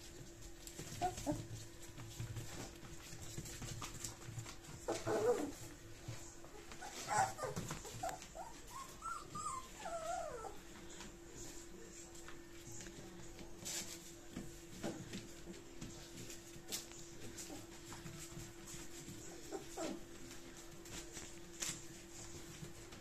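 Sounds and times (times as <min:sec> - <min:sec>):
paws scratching on newspaper: 0:00.0 - 0:23.0
puppies whimpering: 0:04.8 - 0:05.8, 0:06.6 - 0:10.9, 0:19.2 - 0:20.4.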